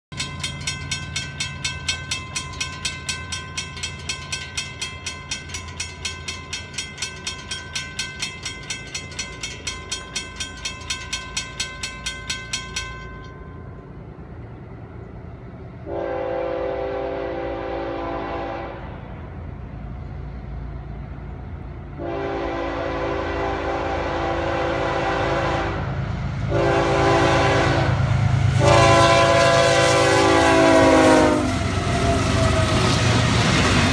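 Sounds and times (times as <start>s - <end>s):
crossing warning bell dinging: 0.1s - 19.8s, 21.2s - 33.9s
locomotive air horn blasts: 15.9s - 19.0s, 22.0s - 31.7s.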